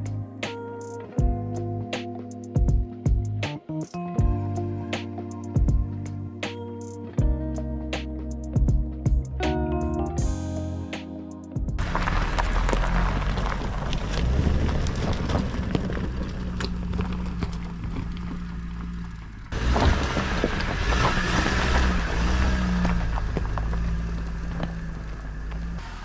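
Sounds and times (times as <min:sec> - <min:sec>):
stones crunching under tyres: 0:11.8 - 0:25.8
car engine hum: 0:11.8 - 0:26.0.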